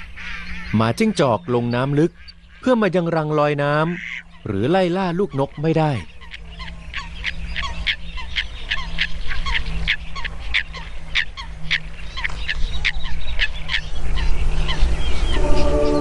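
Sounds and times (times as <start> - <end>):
waterbird honking calls: 0.0 - 16.0.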